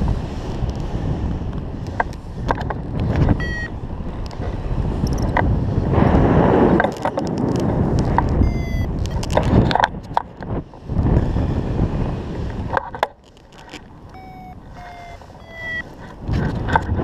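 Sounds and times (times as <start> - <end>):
wind rushing over microphone: 0.0 - 17.0
variometer beeps: 3.2 - 3.8, 5.0 - 5.3, 8.4 - 9.4, 14.0 - 16.0.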